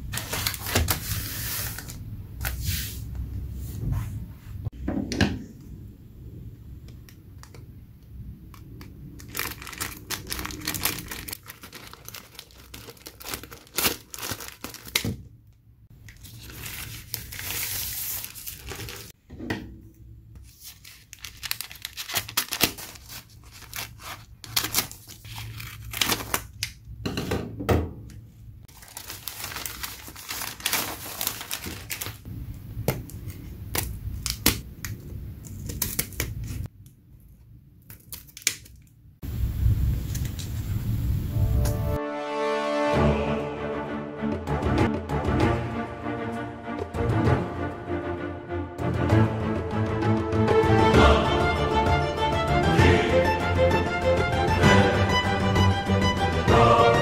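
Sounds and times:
plastic mailer crackling and tearing: 0.0s - 2.0s, 9.1s - 15.2s, 16.1s - 19.2s, 20.5s - 26.8s, 28.7s - 32.3s
newspaper rustling and crinkling: 0.0s - 2.9s, 9.2s - 15.2s, 16.0s - 19.2s, 20.4s - 26.7s, 28.7s - 32.3s.

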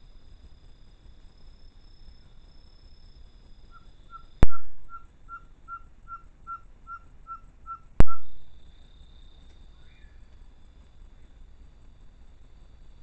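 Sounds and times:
bird whistling: 3.7s - 8.4s.

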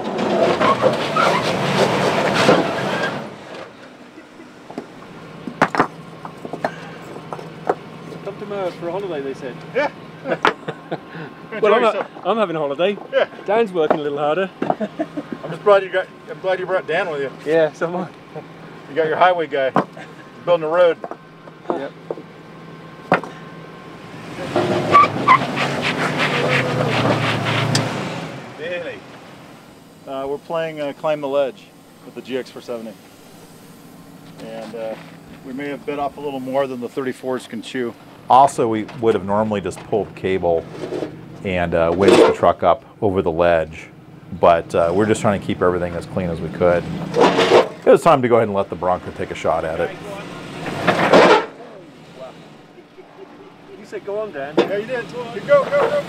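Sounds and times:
car engine idling: 0.0s - 56.0s
short high squeaks: 0.4s - 4.4s, 24.6s - 27.9s
loud rushing noise: 24.2s - 34.0s
tyres scrubbing on rock: 24.6s - 27.9s.

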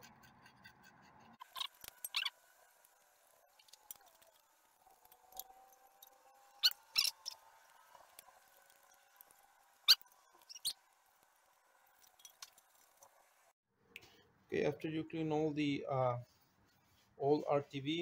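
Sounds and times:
squeaky scraping of sealant off metal: 9.9s - 10.8s.

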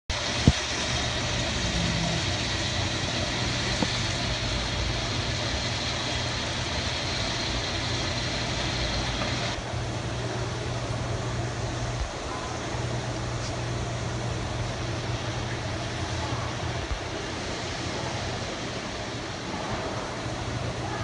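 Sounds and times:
aquarium pumps humming: 0.1s - 21.0s.

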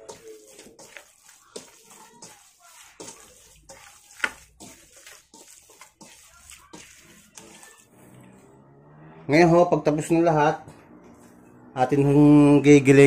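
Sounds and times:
meat being kneaded by hand: 0.0s - 8.0s.

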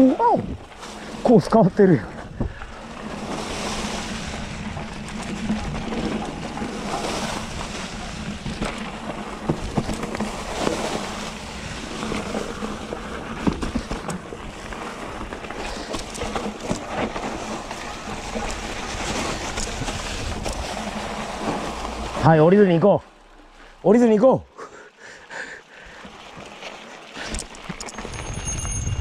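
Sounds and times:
tyres rolling on dirt: 0.6s - 24.2s
bike knocking and rattling: 1.9s - 22.4s, 27.3s - 29.0s
wind rushing over microphone: 27.8s - 29.0s.

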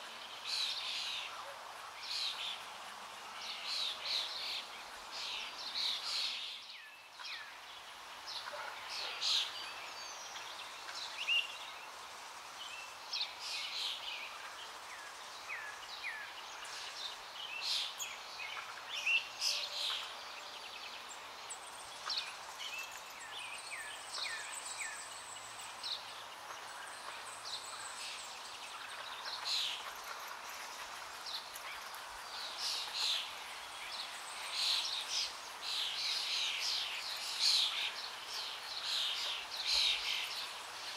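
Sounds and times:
outdoor background hiss: 0.0s - 40.9s
birds chirping and calling: 13.2s - 40.9s.

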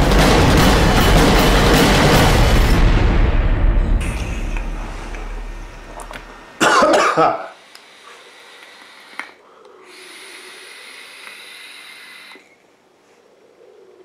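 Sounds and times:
faint hiss of e-cigarette drag: 7.5s - 12.6s
forceful exhale of vapour: 7.6s - 12.6s.

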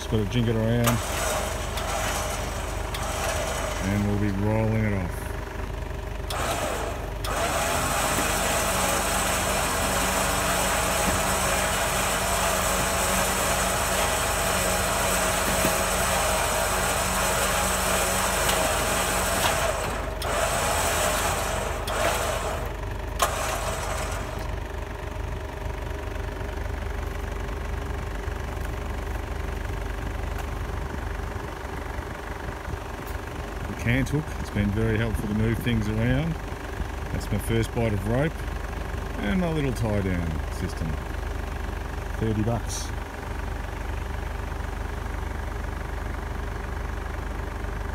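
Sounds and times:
winch running: 0.0s - 25.1s
vehicle engine idling: 0.0s - 47.9s.

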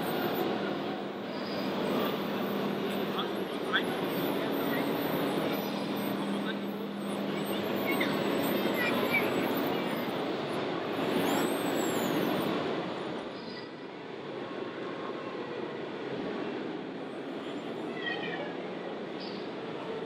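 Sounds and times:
high whining glides: 0.0s - 13.5s.

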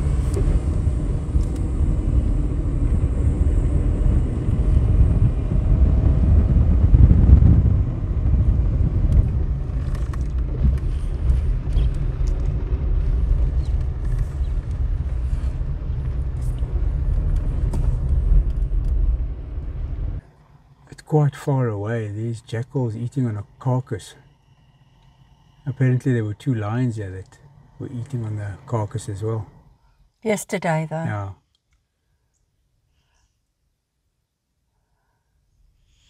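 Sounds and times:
road rumble inside car: 0.0s - 30.4s
stones ticking under tyres: 9.0s - 19.4s.

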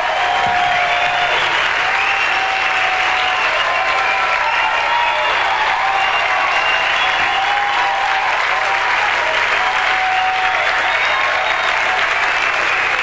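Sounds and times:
audience applauding: 0.0s - 13.0s.

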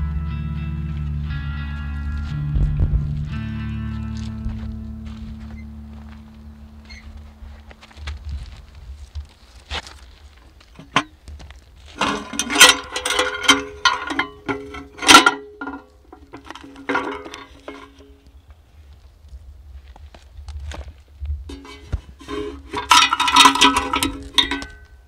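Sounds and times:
metallic clanks and rattles: 10.7s - 11.2s, 11.9s - 18.2s, 21.5s - 25.0s
metal box clicks: 12.0s - 18.2s, 21.5s - 25.0s
metallic ringing: 12.0s - 18.2s, 21.5s - 25.0s.

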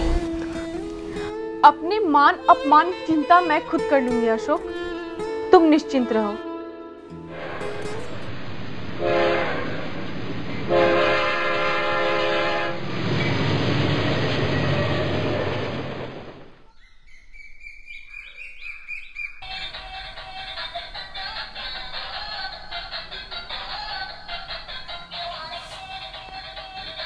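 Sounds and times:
train horn blasts: 7.2s - 12.9s
rumble of train coaches: 7.2s - 16.7s, 19.4s - 27.0s.

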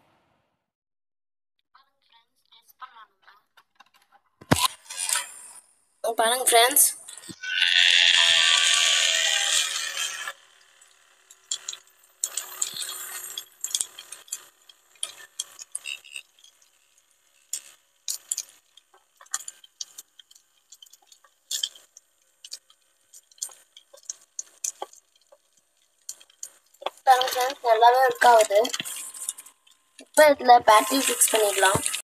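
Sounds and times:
paper scraps ticking on plastic: 17.4s - 32.0s.

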